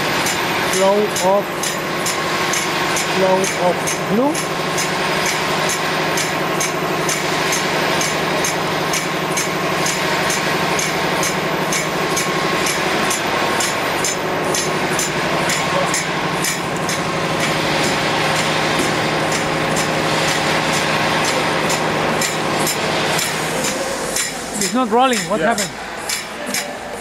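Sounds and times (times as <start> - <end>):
machine humming: 0.0 - 27.0
regular mechanical ticking: 0.2 - 27.0.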